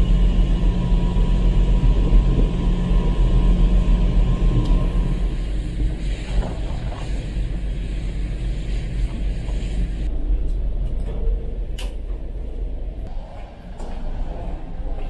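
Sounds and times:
wind and wake water hiss: 0.0 - 10.1
ship engines rumbling: 0.0 - 15.0.

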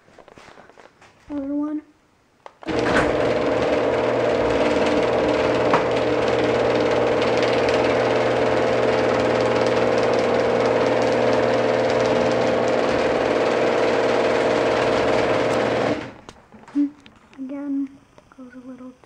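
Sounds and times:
screw drive rattling: 2.6 - 16.4
garage door opener motor hum: 2.6 - 17.3.

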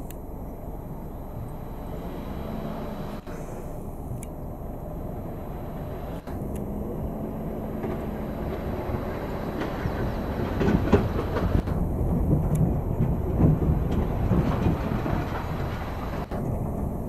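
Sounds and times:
excavator diesel engine running: 0.0 - 17.0
knocks and clatter: 7.7 - 17.0.

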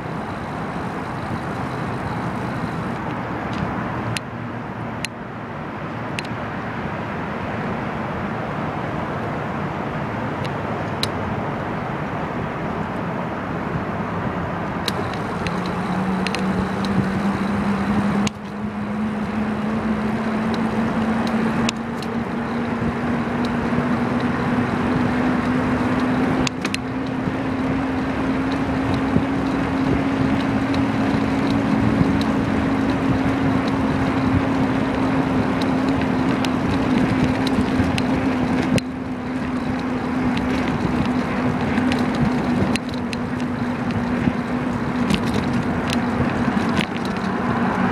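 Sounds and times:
wind rushing over microphone: 0.0 - 47.9
sharp clicks: 14.8 - 18.6, 26.0 - 27.2, 28.5 - 47.9.

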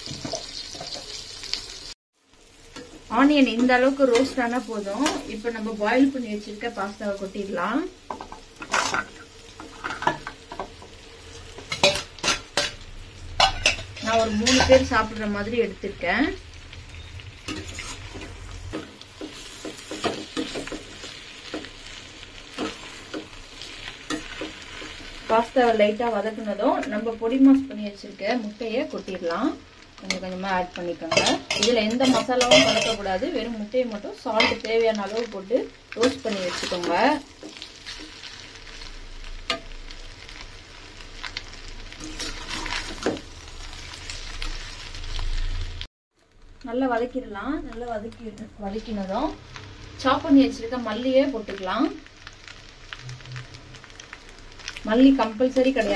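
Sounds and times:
light sizzle: 0.0 - 55.9
metal spatula scraping steel pan: 13.4 - 15.1, 17.5 - 21.6, 31.1 - 33.0, 42.0 - 43.2.

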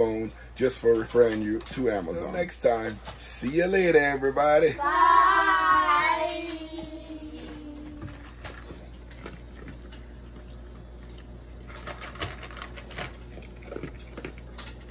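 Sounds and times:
child saying bye: 4.8 - 8.2
dog crunching dry kibble: 8.2 - 14.9.

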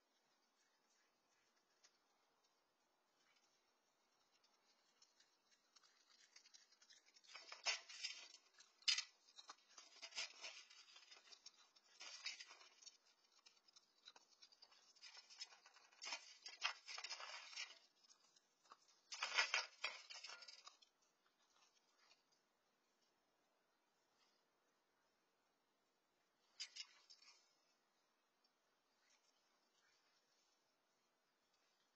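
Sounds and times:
animal crunching kibble: 0.0 - 23.1.

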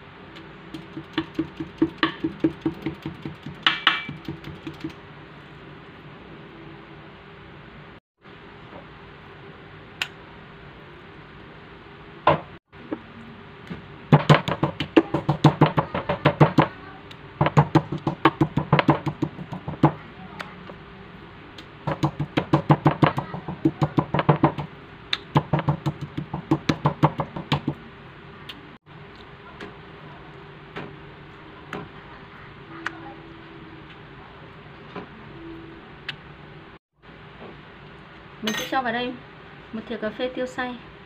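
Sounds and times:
meat mallet pounding on board: 0.7 - 4.9, 14.1 - 16.8, 17.4 - 20.0, 21.9 - 27.8.

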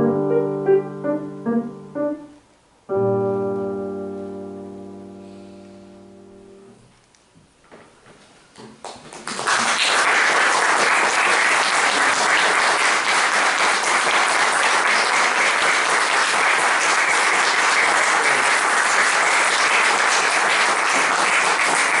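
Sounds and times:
grand piano chord: 0.0 - 6.8
audience applause: 8.8 - 22.0.

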